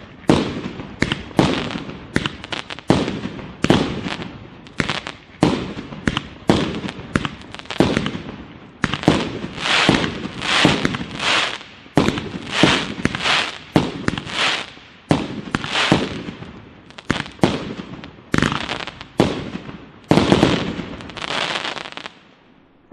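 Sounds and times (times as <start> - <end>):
fireworks bangs: 0.0 - 22.9
fireworks crackling: 0.0 - 22.9
fireworks hiss: 8.8 - 16.3, 20.1 - 22.2.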